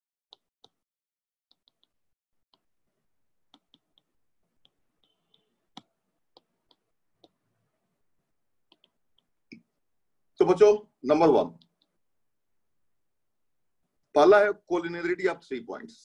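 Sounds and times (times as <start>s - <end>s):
stylus tapping on glass screen: 3.5s - 7.4s.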